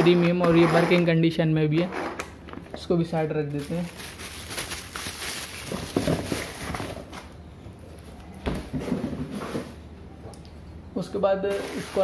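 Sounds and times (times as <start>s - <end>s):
plastic bag crinkling: 3.5s - 7.1s.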